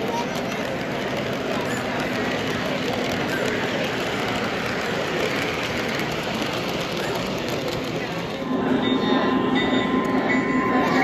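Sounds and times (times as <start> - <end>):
model train wheels rumbling: 0.0 - 11.0
steady multi-pitch tone: 8.4 - 11.0.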